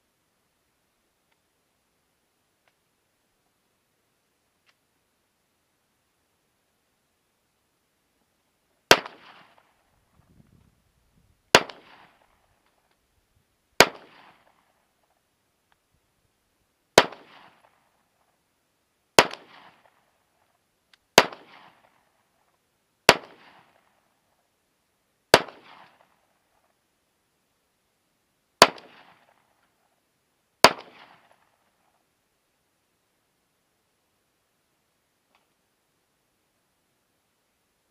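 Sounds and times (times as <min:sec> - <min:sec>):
pistol shots with echo: 0:08.9 - 0:09.7, 0:11.5 - 0:12.4, 0:13.8 - 0:14.6, 0:17.0 - 0:17.8, 0:19.2 - 0:20.0, 0:21.2 - 0:22.0, 0:25.3 - 0:26.0, 0:30.6 - 0:31.4.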